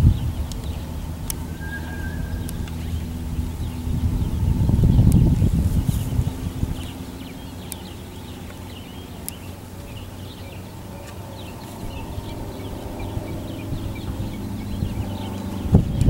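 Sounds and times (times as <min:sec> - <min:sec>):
small birds chirping: 0:00.0 - 0:16.0
steady low hum: 0:00.0 - 0:16.0
sharp clicks: 0:00.3 - 0:03.4, 0:05.0 - 0:05.3, 0:07.6 - 0:09.6.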